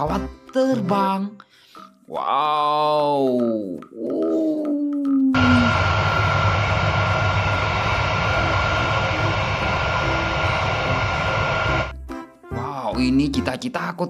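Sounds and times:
jet engines running: 0:05.4 - 0:11.9.

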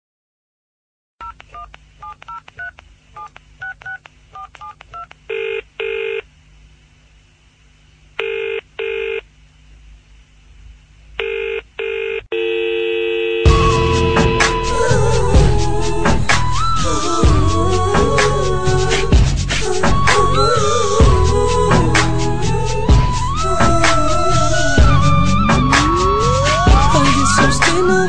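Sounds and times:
telephone ringing tone: 0:08.2 - 0:09.2, 0:11.2 - 0:14.4
steady telephone tone: 0:11.2 - 0:15.0
music with a beat: 0:13.5 - 0:28.0.

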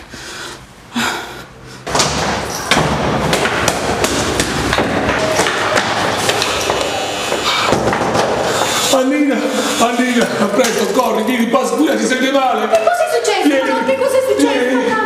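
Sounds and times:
rapid banging and thumping: 0:01.9 - 0:08.8.

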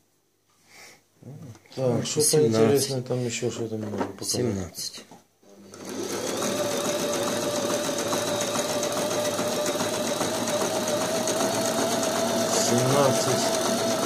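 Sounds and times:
sewing machine running: 0:05.6 - 0:14.0.

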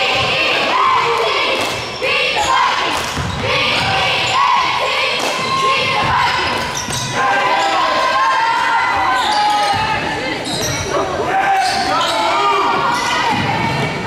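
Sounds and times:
basketball bouncing on gym floor: 0:03.0 - 0:04.0
shoe squeaks and calls: 0:05.4 - 0:08.0, 0:09.0 - 0:12.5.

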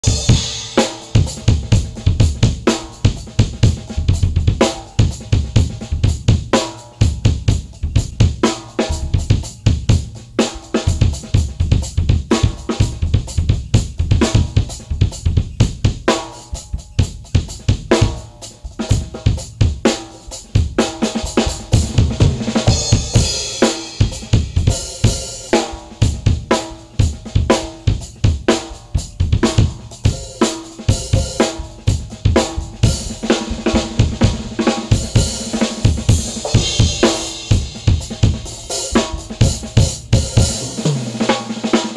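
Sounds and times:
cymbals and hi-hat: 0:00.0 - 0:41.9.

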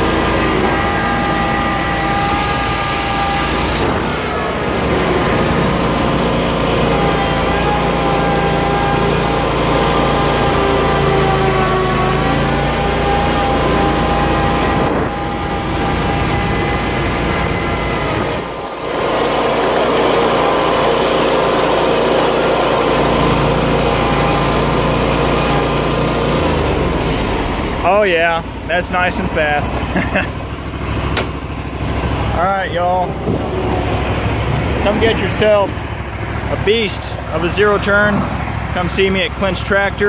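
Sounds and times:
mower engine at full throttle: 0:00.0 - 0:40.0.

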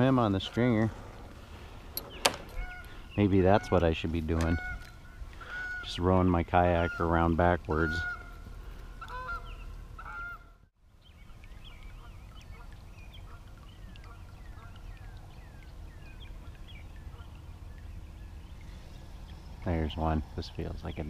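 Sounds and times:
short high bird calls: 0:02.1 - 0:03.7
geese honking: 0:02.5 - 0:10.6.

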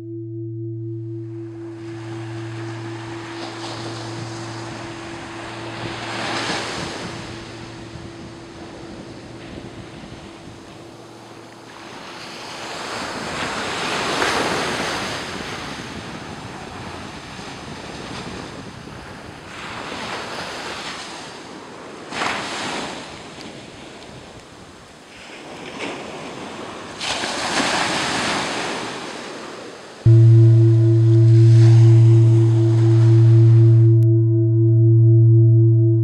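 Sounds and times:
wind on microphone: 0:01.3 - 0:24.7.

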